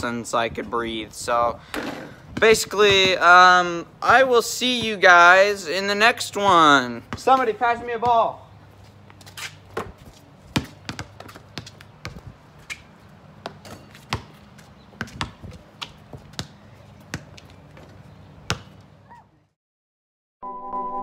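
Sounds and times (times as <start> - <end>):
basketballs bouncing on concrete: 1.6 - 5.6, 6.2 - 8.4, 9.0 - 19.0.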